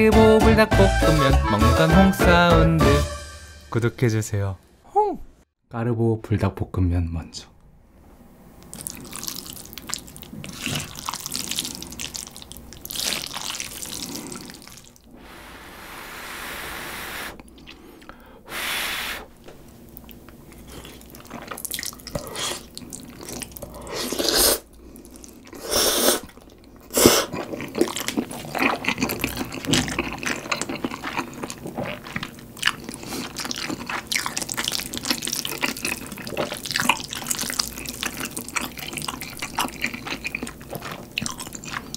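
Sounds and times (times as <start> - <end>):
slurping and chewing noodles: 8.6 - 15.1, 16.5 - 18.2, 20.0 - 41.9.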